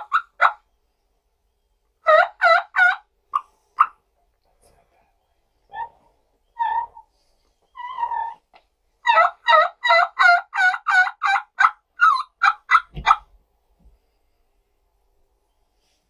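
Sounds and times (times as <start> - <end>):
turkey yelping: 0.0 - 0.7, 2.0 - 4.0, 5.7 - 7.1, 7.7 - 13.3.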